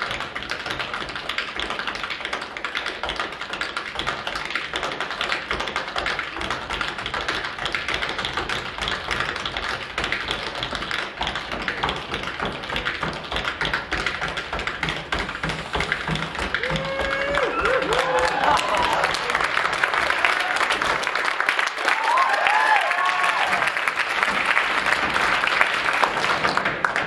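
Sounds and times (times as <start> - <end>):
tap shoes on wooden floor: 0.0 - 18.9.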